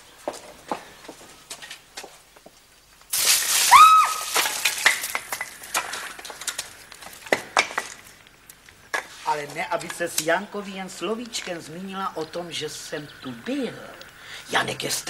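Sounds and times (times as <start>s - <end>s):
fire hissing and crackling: 0.0s - 15.0s.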